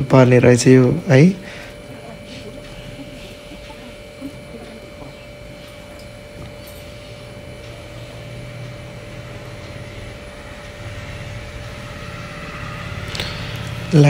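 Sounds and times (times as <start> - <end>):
low hum and hiss: 0.0 - 14.0.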